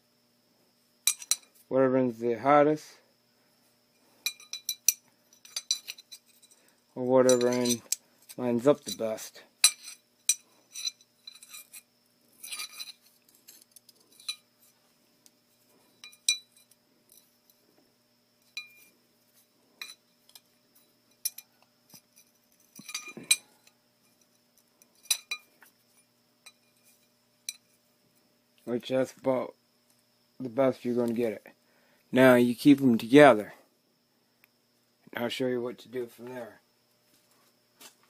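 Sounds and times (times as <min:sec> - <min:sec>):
steel pieces clinking: 0:01.0 - 0:01.6, 0:04.1 - 0:14.8, 0:15.6 - 0:17.6, 0:18.4 - 0:18.9, 0:19.8 - 0:27.8.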